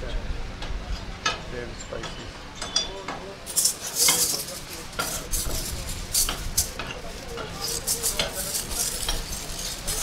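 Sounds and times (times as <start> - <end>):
aluminium foil crinkling: 3.5 - 10.0.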